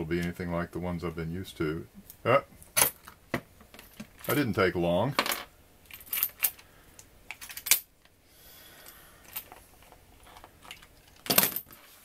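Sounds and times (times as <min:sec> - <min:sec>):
lock picking tools clatter: 0:05.9 - 0:06.6, 0:07.3 - 0:07.9.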